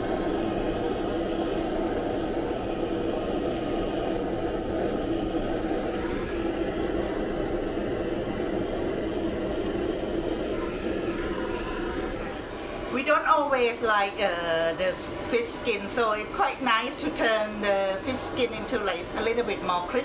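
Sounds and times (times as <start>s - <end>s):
blowtorch flame rushing: 0.0s - 12.7s.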